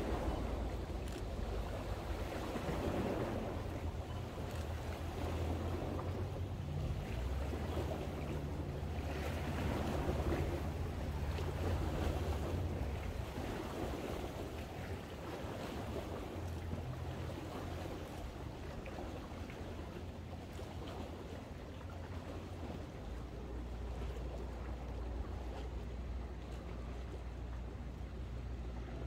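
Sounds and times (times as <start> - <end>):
low steady hum: 0.0 - 29.0
waves lapping against rocks: 0.0 - 29.0.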